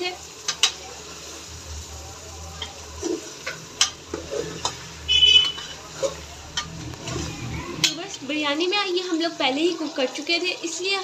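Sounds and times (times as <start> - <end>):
light sizzle: 0.0 - 11.0
metal spoon stirring in a pot: 2.5 - 8.5.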